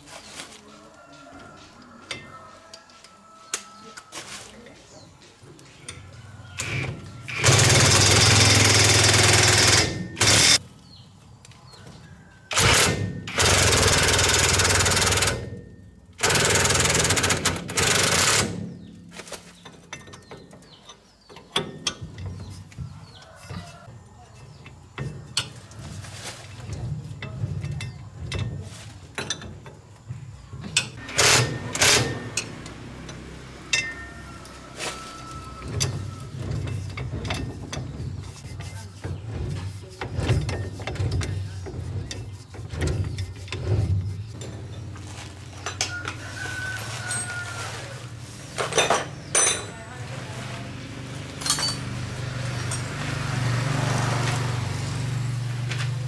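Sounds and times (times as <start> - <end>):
impact wrench hammering: 6.6 - 10.6
hand tools clinking on metal: 12.8 - 29.8, 30.6 - 47.7, 48.5 - 50.2, 51.2 - 53.2.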